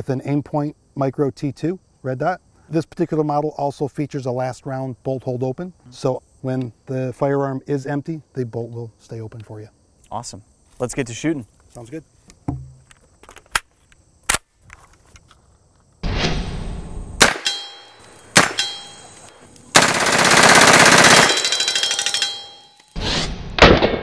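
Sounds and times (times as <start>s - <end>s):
ringing of bullets on steel: 17.2s - 23.0s.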